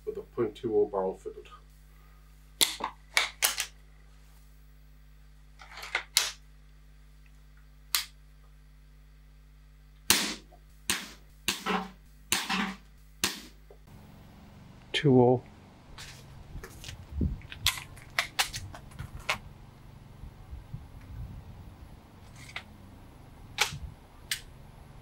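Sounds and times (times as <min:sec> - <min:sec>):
air rifle firing cracks: 0:10.1 - 0:13.6.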